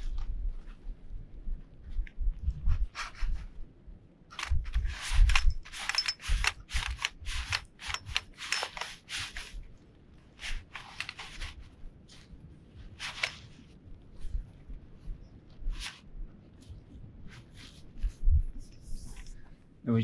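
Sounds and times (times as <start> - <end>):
fabric rustling and swishing: 4.6 - 19.6
dull low bumps: 13.6 - 19.6.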